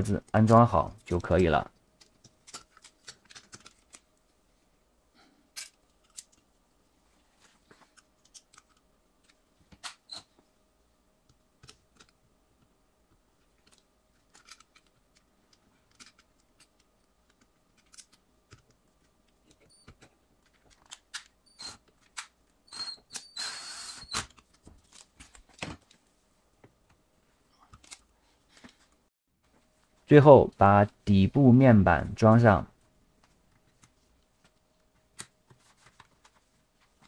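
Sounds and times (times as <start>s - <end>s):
cordless drill whirring: 22.7s - 24.3s.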